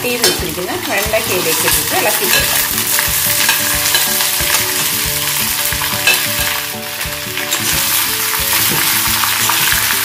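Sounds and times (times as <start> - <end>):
okra sizzling in hot oil: 0.0 - 10.0.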